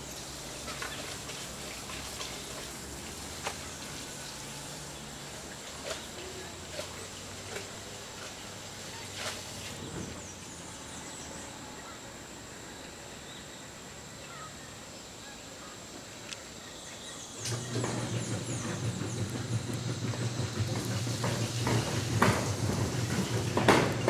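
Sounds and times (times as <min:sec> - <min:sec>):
low motor hum: 0:16.0 - 0:24.0.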